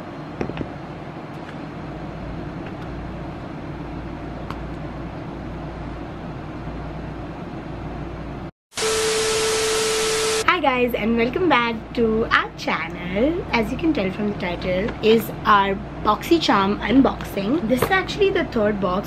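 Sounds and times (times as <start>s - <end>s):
tv static hiss: 8.7s - 10.5s
steady beep tone: 8.8s - 10.4s.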